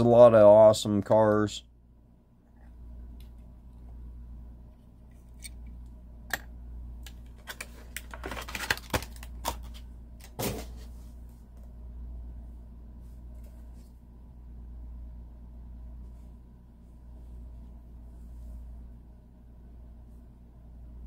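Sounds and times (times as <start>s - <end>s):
low steady hum: 0.0s - 21.0s
packaging rustling: 7.2s - 10.4s.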